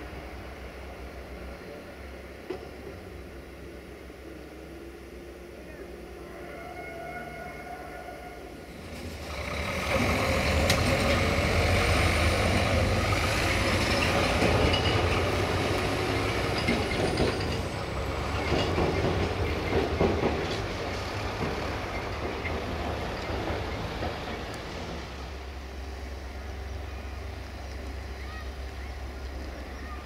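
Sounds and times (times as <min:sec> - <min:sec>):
heavy vehicle rumble: 0:08.4 - 0:30.0.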